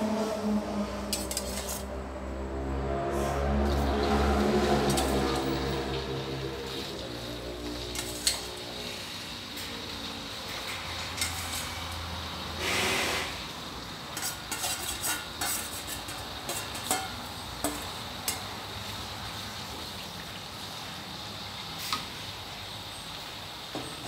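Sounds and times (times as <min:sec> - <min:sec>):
spatula clinking on metal: 0:01.1 - 0:01.9, 0:14.2 - 0:18.5
meat sizzling in oil: 0:03.5 - 0:24.0
short loud hiss: 0:12.6 - 0:13.5.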